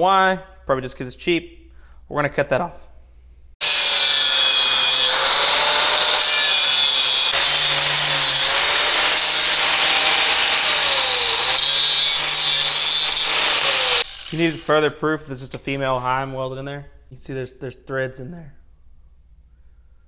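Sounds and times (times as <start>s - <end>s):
angle grinder cutting steel: 3.6s - 16.0s.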